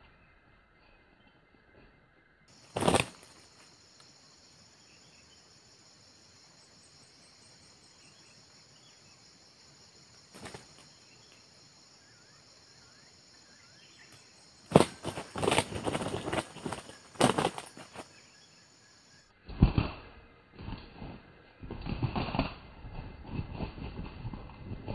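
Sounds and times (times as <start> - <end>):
faint bird chirps: 0.0 - 19.4.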